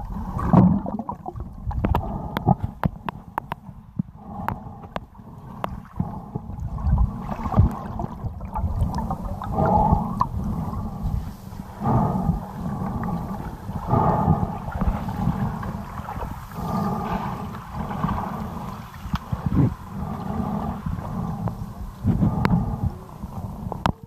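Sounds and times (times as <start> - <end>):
bubbling gushes: 0.0 - 2.8, 5.4 - 11.2
underwater rumble of moving water: 0.0 - 24.0.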